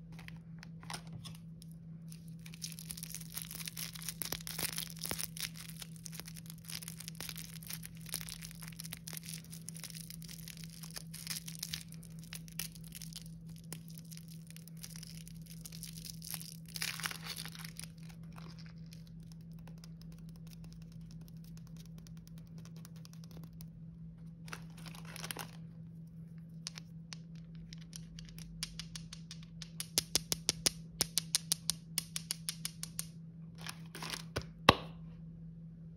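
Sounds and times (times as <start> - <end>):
plastic wrapper crinkling: 0.0 - 28.6
low hum: 0.0 - 30.0.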